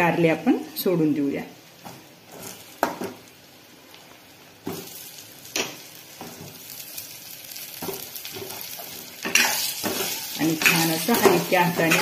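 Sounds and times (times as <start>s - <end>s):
food sizzling in hot oil: 0.0s - 12.0s
pieces knocking in pan: 7.8s - 12.0s.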